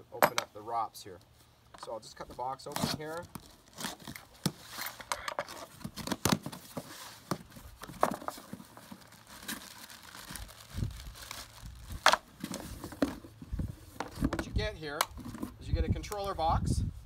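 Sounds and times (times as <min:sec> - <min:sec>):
plastic bag rustling: 0:02.4 - 0:14.4.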